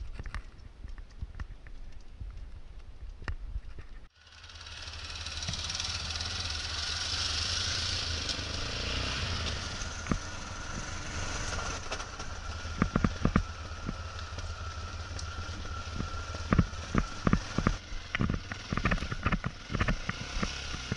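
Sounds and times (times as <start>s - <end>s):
motorcycle engine running: 4.1s - 20.9s
motorcycle jolting over stones: 8.3s - 20.9s.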